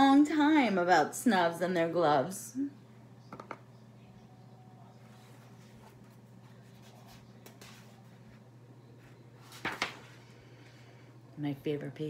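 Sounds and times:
low room hum: 0:00.0 - 0:12.0
book pages turning: 0:09.4 - 0:10.2.

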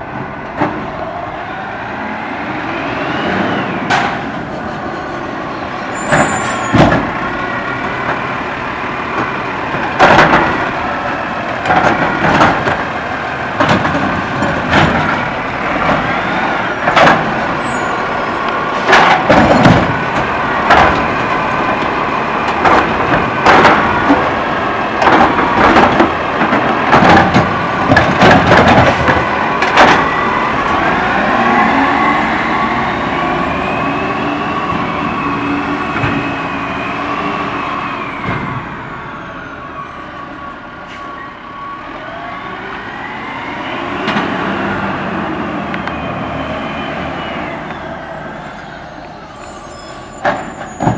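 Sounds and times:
trash carts banging and clattering: 0:03.9 - 0:32.6, 0:48.6 - 0:50.9.

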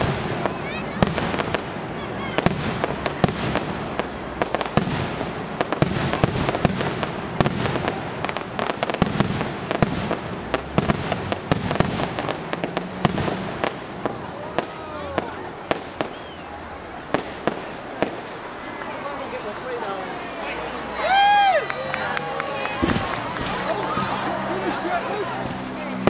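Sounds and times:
fireworks bangs and pops: 0:00.0 - 0:19.3, 0:22.6 - 0:26.0.

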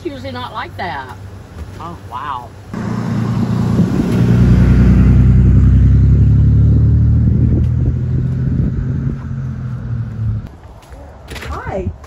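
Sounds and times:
vehicle engine idling: 0:02.8 - 0:10.5.

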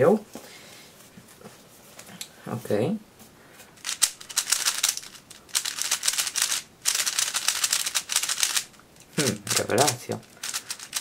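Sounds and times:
plastic puzzle cube clicking: 0:03.8 - 0:11.0.

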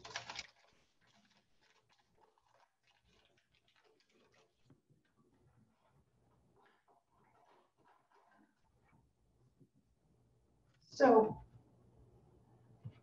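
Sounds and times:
paper wrapper crinkling: 0:00.0 - 0:04.4
faint ticks and rustles: 0:00.0 - 0:09.9.

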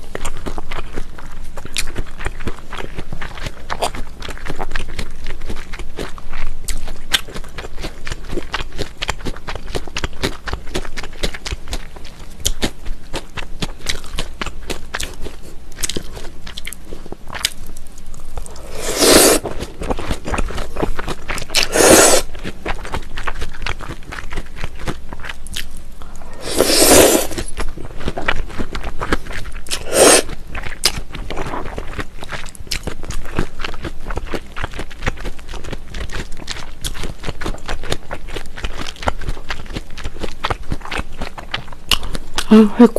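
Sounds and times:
close chewing with wet crunches: 0:00.0 - 0:18.8, 0:19.4 - 0:26.4, 0:27.2 - 0:42.5
loud noodle slurps: 0:18.4 - 0:19.7, 0:21.5 - 0:22.4, 0:26.2 - 0:27.6, 0:29.7 - 0:30.4.

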